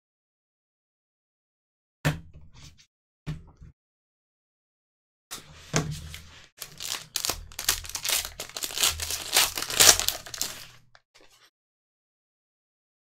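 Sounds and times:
foil wrapper crinkling and tearing: 0:06.6 - 0:11.0.

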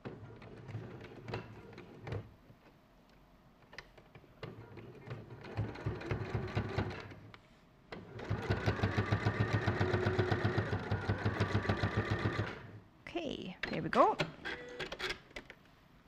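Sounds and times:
sewing machine stitching: 0:04.4 - 0:07.2, 0:08.0 - 0:12.8.

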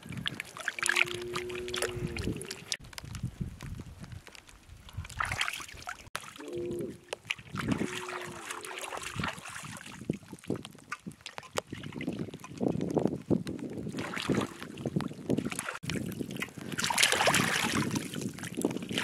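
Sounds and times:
hands splashing water: 0:05.0 - 0:12.9, 0:13.9 - 0:19.0.

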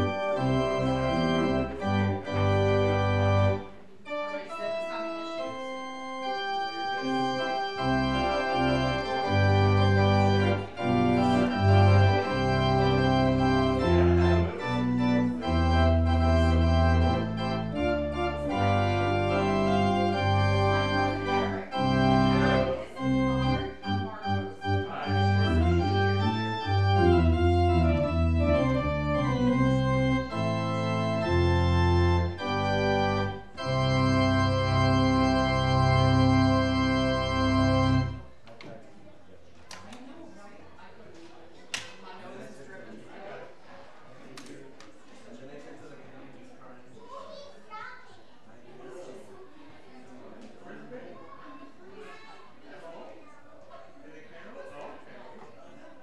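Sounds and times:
organ chords: 0:00.0 - 0:38.4
low bass line: 0:24.8 - 0:36.5.

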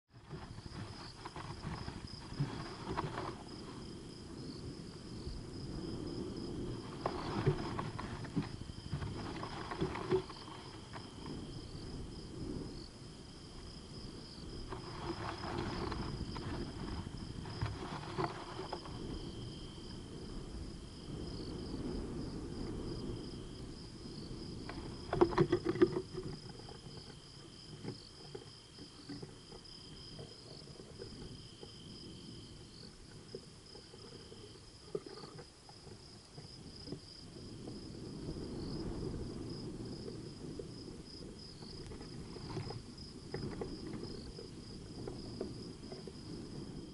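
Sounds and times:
crickets trilling: 0:00.1 - 0:46.9
dormouse scratching and rustling: 0:00.2 - 0:03.9, 0:06.7 - 0:11.4, 0:14.7 - 0:19.1.

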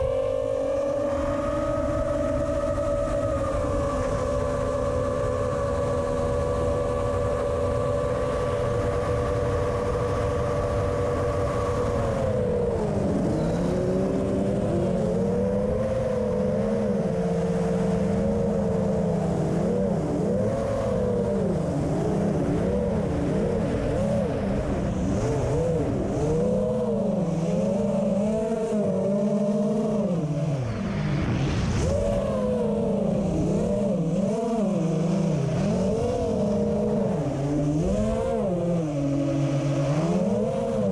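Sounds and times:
quadcopter propellers whining: 0:00.0 - 0:40.9.

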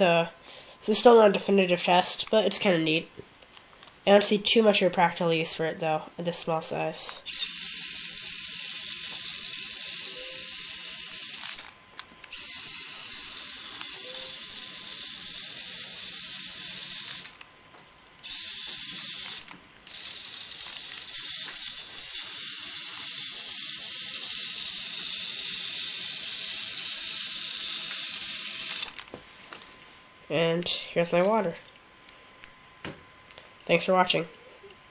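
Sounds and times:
servo gear whir: 0:07.3 - 0:17.4, 0:18.2 - 0:29.1.

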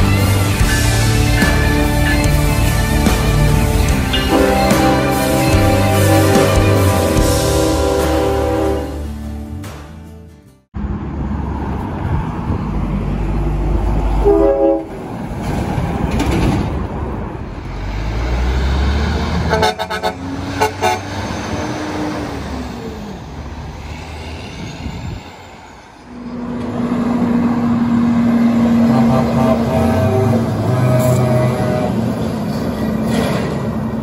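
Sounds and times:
trucks passing with engine rumble: 0:00.0 - 0:10.2, 0:10.8 - 0:34.0
truck air horns: 0:04.0 - 0:09.3, 0:14.2 - 0:15.0, 0:19.4 - 0:21.2, 0:28.5 - 0:32.3.

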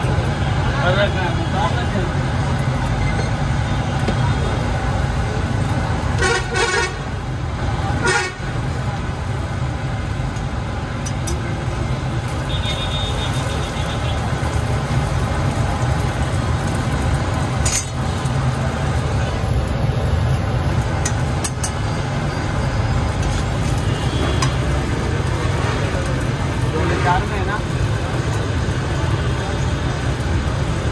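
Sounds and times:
road traffic rumble: 0:00.0 - 0:30.9
metal spatula clinking on griddle: 0:17.5 - 0:18.1, 0:21.0 - 0:21.9.

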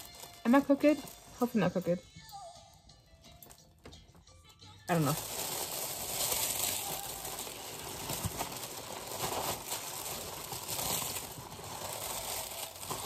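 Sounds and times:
wrapping paper rustling: 0:00.0 - 0:01.6, 0:04.9 - 0:13.0.

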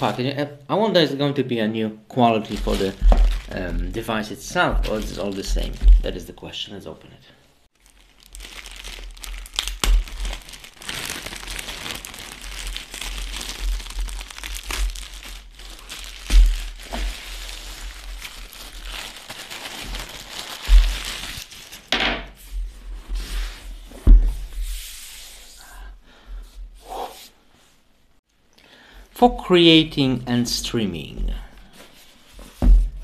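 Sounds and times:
plastic bag crinkling: 0:02.3 - 0:06.3, 0:07.8 - 0:21.9
cardboard box thumps: 0:32.6 - 0:33.0.

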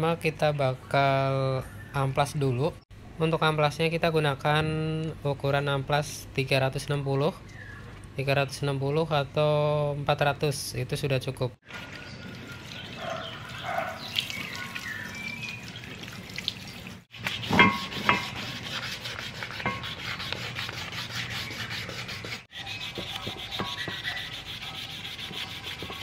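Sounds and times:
wet sandpaper rubbing on rim: 0:17.1 - 0:26.0.

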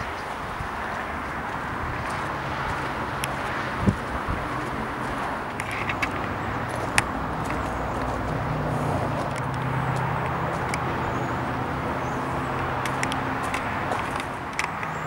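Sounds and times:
diesel engine idling: 0:00.8 - 0:15.0
sharp ticks: 0:05.5 - 0:08.4, 0:09.2 - 0:10.9, 0:12.8 - 0:15.0.

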